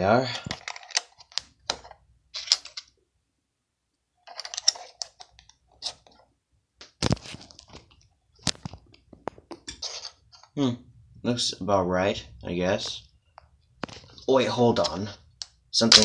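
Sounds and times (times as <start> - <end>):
plastic bricks clicking and rattling: 4.3 - 5.9.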